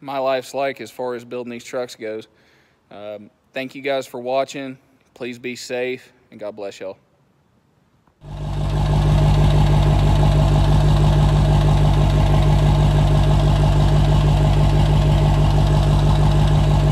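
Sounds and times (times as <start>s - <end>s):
diesel engine idling: 8.2s - 16.9s.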